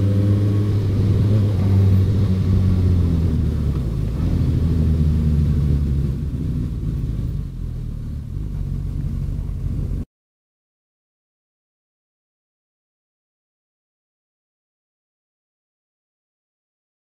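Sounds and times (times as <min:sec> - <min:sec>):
motorcycle engine at low revs: 0:00.0 - 0:10.0.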